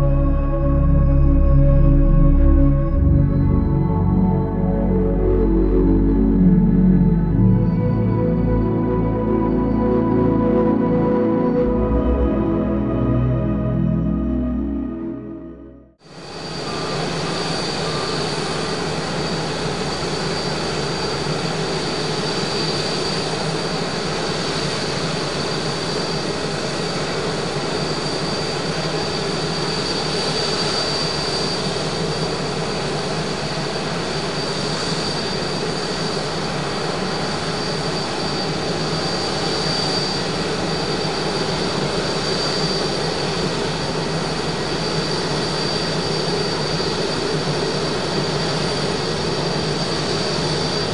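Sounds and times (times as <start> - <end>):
jet engines at takeoff thrust: 16.0 - 50.9.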